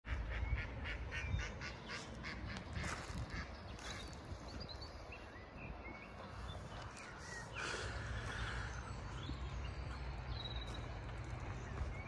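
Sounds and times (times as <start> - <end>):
ducks quacking: 0.1 - 4.2
small birds chirping: 0.3 - 12.0.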